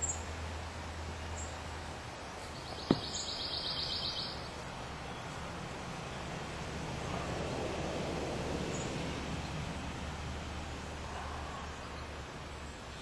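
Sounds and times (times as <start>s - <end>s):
steady background hiss: 0.0s - 13.0s
sharp knock: 2.9s - 3.2s.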